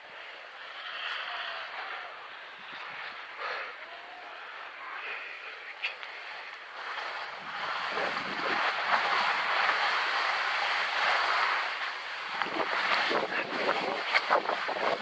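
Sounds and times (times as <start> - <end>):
skis sliding over snow: 0.0 - 15.0
ski edges scraping snow: 6.1 - 15.0
wind on microphone: 6.2 - 15.0.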